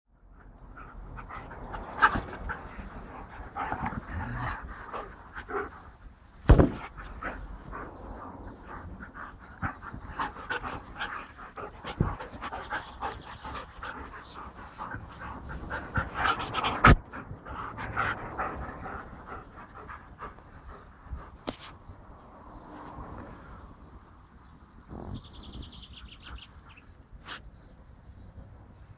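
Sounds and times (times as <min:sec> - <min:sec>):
dogs panting rapidly: 0:00.2 - 0:21.8.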